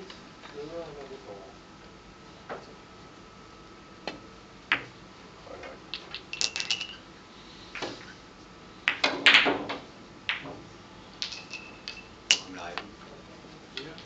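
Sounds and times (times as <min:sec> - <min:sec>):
billiard balls clicking: 0:05.7 - 0:07.0, 0:08.9 - 0:10.6, 0:11.2 - 0:12.9, 0:13.8 - 0:14.0.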